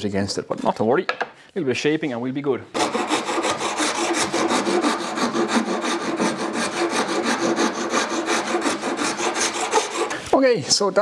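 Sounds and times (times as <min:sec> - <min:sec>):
saw rasp rasping wood: 0:02.7 - 0:10.2.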